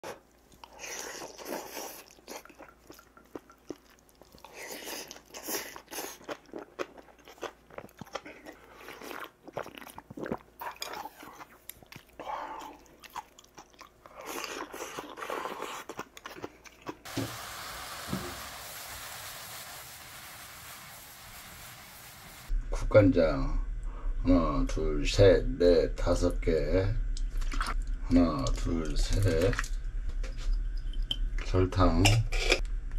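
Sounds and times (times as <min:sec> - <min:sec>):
chewing and crunching food: 0:00.0 - 0:17.1
steady hiss: 0:17.1 - 0:22.5.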